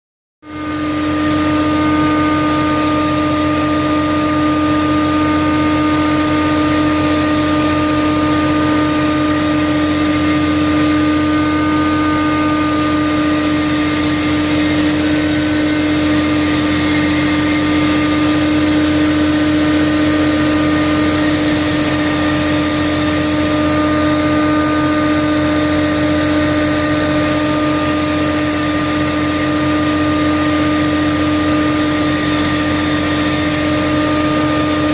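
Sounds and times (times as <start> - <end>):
engine and machinery drone: 0.4 - 34.9.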